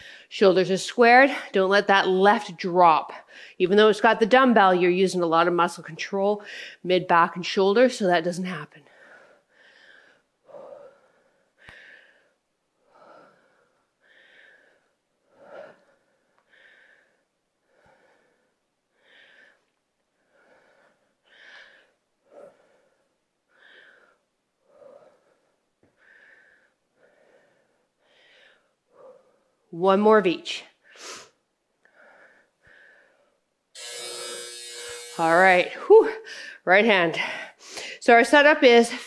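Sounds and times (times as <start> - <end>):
woman breathing from exertion: 0.0 - 0.3.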